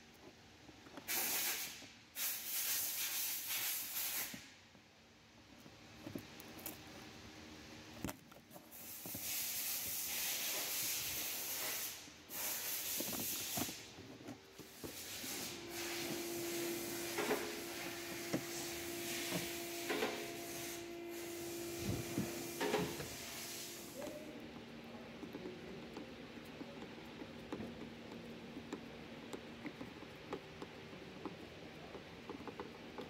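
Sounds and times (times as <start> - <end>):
steady hiss: 0.9 - 4.7, 8.6 - 27.7
steady hum: 5.5 - 33.0.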